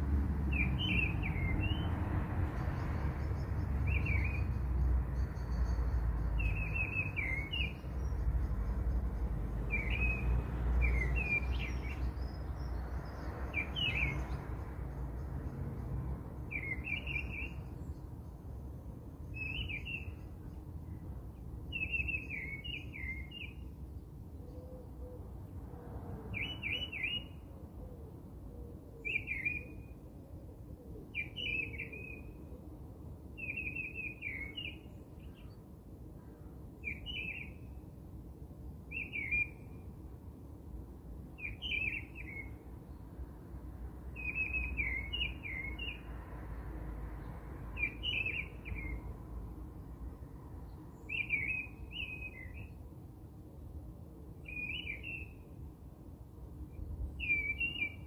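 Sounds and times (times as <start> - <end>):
bird chirping: 0.5 - 18.6, 19.2 - 21.0, 21.7 - 24.6, 26.4 - 27.5, 29.0 - 30.0, 31.1 - 32.4, 33.4 - 35.6, 36.8 - 37.8, 38.9 - 39.9, 41.4 - 43.0, 44.2 - 46.1, 47.8 - 49.2, 50.6 - 52.8, 54.4 - 55.6, 56.7 - 58.0.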